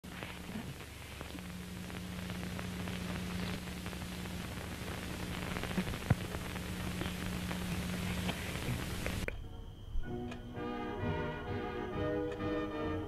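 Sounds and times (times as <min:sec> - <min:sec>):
crackling static: 0:00.0 - 0:13.0
steady low hum: 0:00.0 - 0:13.0
small clicks and pops: 0:00.2 - 0:09.4.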